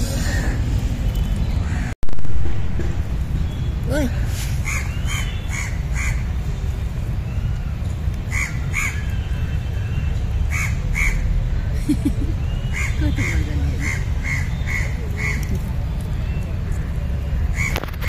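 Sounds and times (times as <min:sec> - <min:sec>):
bird calling: 0:03.5 - 0:06.3.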